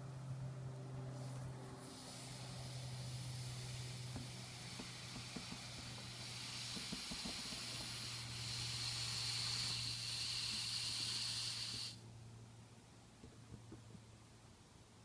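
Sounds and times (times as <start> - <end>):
air hissing out of balloon: 1.1 - 12.0.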